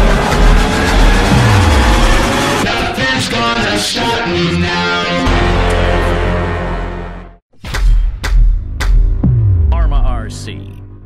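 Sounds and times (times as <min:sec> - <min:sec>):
deep bass note: 0:00.0 - 0:02.6, 0:08.2 - 0:11.0
guitar rock music: 0:00.0 - 0:07.4.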